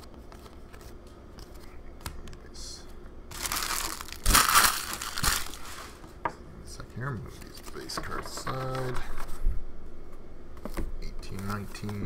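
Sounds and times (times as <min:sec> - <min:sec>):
foil wrapper crinkling: 0:03.3 - 0:05.9.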